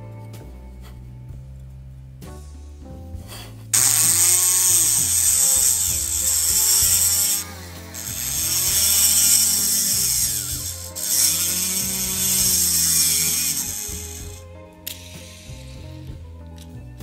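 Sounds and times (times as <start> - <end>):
rotary tool grinding metal: 3.8 - 15.8.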